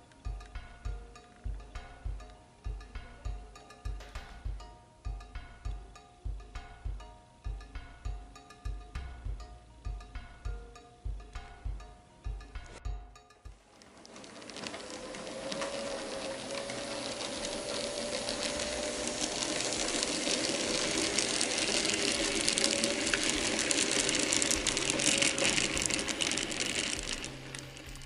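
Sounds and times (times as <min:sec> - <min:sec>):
model train wheels clicking: 0:13.6 - 0:28.0
electric motor whine: 0:14.4 - 0:28.0.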